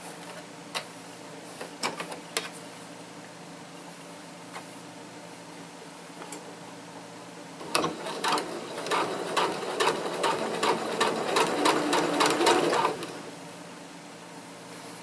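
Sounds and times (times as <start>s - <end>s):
sewing machine motor hum: 7.6s - 13.4s.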